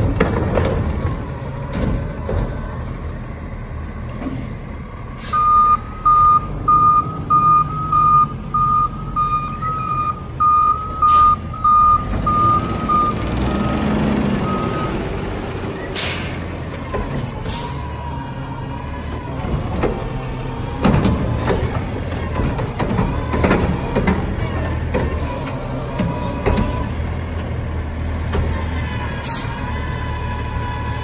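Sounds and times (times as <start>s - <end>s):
garbage truck diesel engine running: 0.0s - 31.0s
air brakes hissing: 5.2s - 5.6s, 11.0s - 11.5s, 15.8s - 17.9s, 29.0s - 29.6s.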